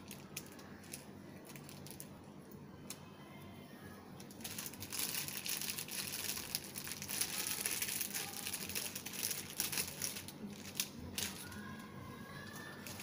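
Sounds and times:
plastic packaging crinkling: 0.0 - 2.2, 4.2 - 13.0.

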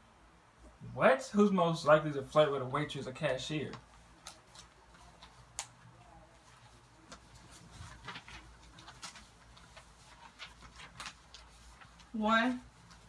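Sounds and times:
paper signs clicking and rustling: 3.6 - 13.0.

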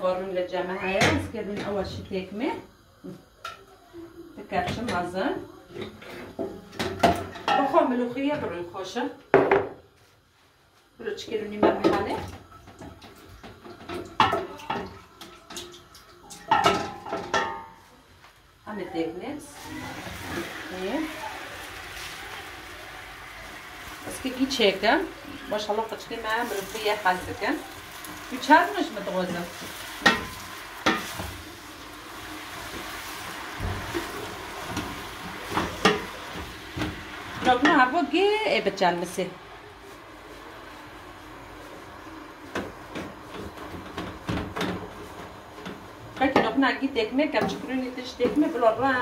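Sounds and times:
leaves sizzling in a pot: 0.0 - 49.0
metal pot ringing clangs: 16.2 - 17.8
wooden spoon stirring: 19.6 - 38.0.

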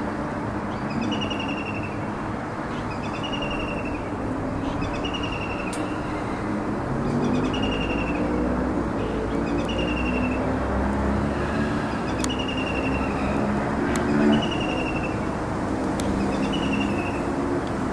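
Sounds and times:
traffic noise: 0.0 - 17.9.

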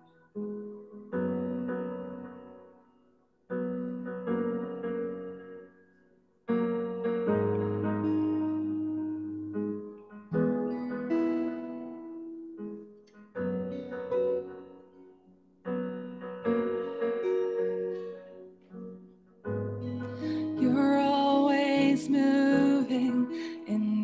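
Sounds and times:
slow piano chords: 0.0 - 24.0
soft acoustic guitar: 7.3 - 15.3.

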